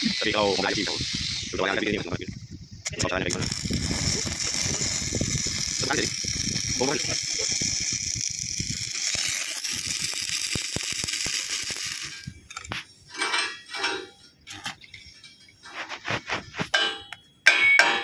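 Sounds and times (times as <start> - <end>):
welding arc crackling and hissing: 0.0 - 13.0.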